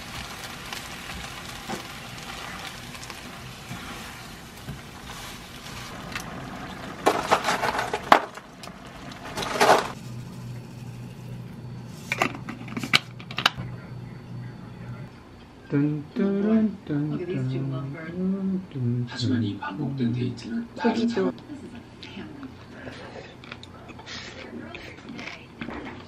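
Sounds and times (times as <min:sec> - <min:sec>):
food sizzling in a frying pan: 0:00.0 - 0:12.2
spatula scraping a pan: 0:03.6 - 0:06.0.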